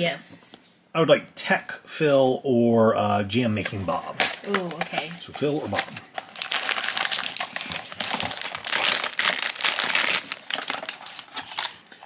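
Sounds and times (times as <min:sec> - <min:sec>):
foil bag crinkling: 0:04.2 - 0:12.0.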